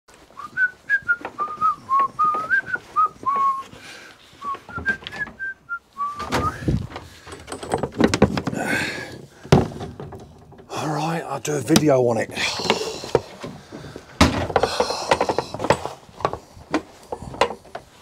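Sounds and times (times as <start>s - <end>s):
man whistling a tune: 0.4s - 3.7s, 4.4s - 6.7s
plastic clattering and knocks: 6.2s - 10.8s, 11.6s - 18.0s.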